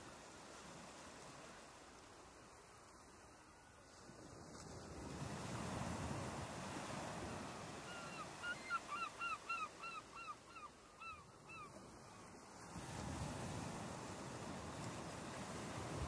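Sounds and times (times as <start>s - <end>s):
small waves breaking on sand: 0.0s - 16.0s
bird calling: 7.9s - 11.8s.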